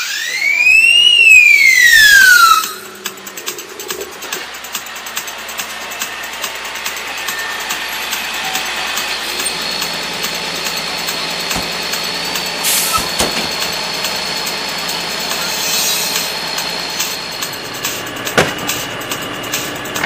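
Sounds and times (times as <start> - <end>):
diesel engine idling: 0.0 - 20.0
knocks: 18.4 - 18.8.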